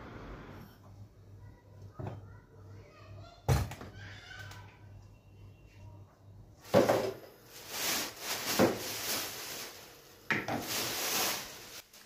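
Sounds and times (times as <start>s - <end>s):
plastic bags rustling: 6.6s - 12.0s
plastic containers set down: 6.7s - 7.3s, 8.3s - 9.0s, 10.3s - 10.9s.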